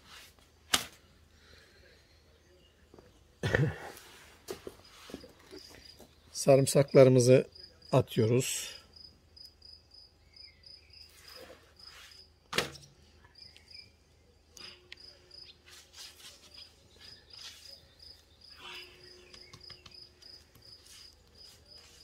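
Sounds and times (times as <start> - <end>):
cricket chirping: 8.7 - 12.3, 13.4 - 14.0.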